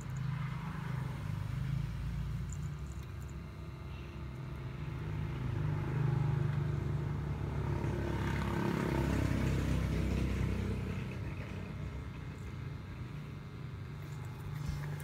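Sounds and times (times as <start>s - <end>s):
vehicle engine passing by: 4.7s - 12.2s.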